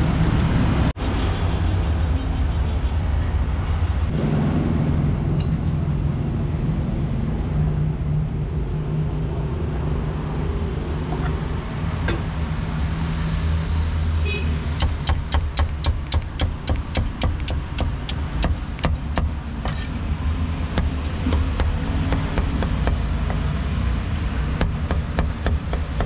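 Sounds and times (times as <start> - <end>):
road traffic: 0.0 - 26.0
cleaver chopping on wooden block: 14.8 - 19.4, 20.7 - 23.4, 24.6 - 26.0.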